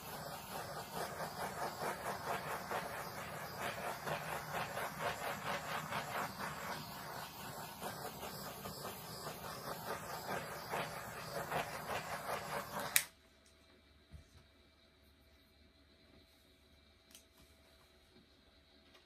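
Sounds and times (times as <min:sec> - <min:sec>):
gas torch flame hissing: 0:00.0 - 0:13.2.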